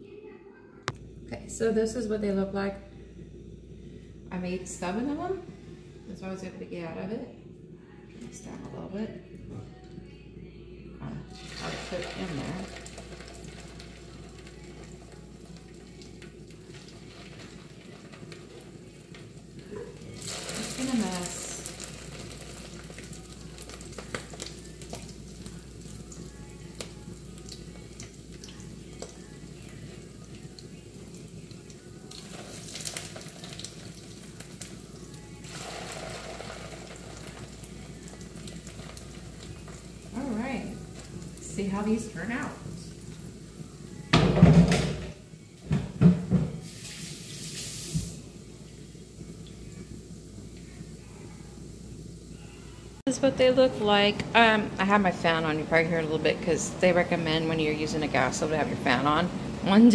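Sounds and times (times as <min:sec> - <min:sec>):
patties sizzling in oil: 0:11.3 - 0:45.7, 0:46.6 - 0:54.2.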